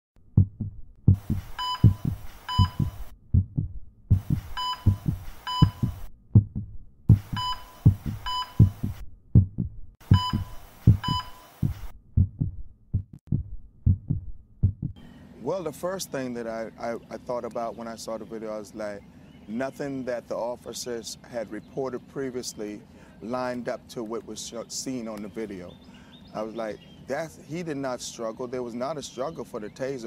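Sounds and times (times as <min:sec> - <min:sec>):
heartbeat thumps: 0:00.2 - 0:15.0
heart monitor beeps: 0:00.4 - 0:15.0.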